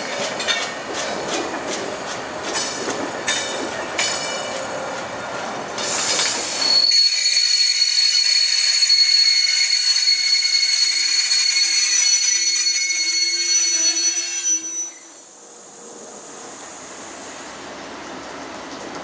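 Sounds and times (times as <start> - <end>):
train wheels squealing: 5.8 - 18.5.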